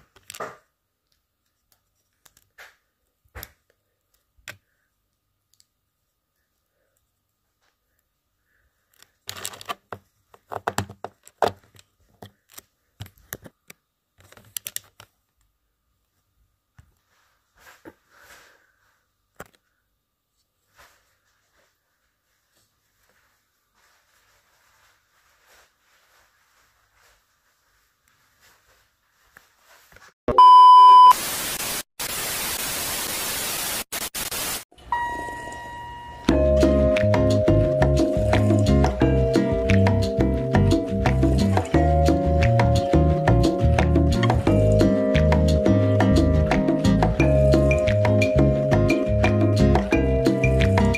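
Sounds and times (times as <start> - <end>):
plastic bricks clicking and clattering: 8.9 - 13.6
loud electronic beep: 30.3 - 31.2
harsh static hiss: 31.1 - 34.7.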